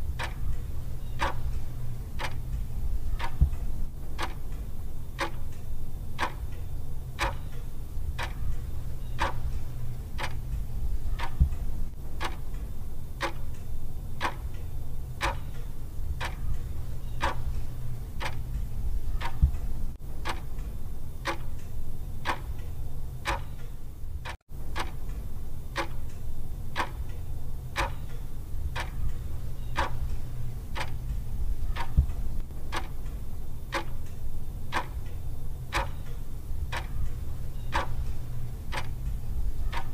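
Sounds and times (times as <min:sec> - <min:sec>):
clock ticking: 0:00.0 - 0:06.6, 0:07.2 - 0:25.2, 0:25.8 - 0:26.2, 0:26.8 - 0:27.2, 0:27.8 - 0:39.9
low hum: 0:23.9 - 0:39.8.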